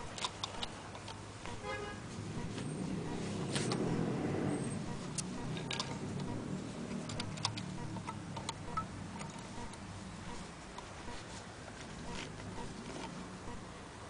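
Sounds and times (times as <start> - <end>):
light metallic clicks: 0.0 - 1.6, 5.1 - 10.9
low steady hum: 0.0 - 14.0.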